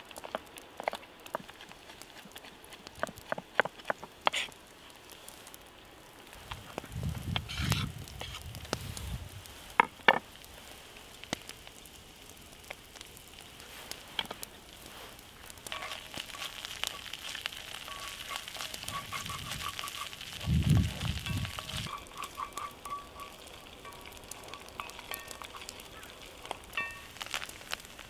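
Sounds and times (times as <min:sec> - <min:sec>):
garlic sizzling in oil: 0:00.0 - 0:28.0
wooden spoon stirring in pan: 0:00.2 - 0:04.6, 0:13.4 - 0:28.0.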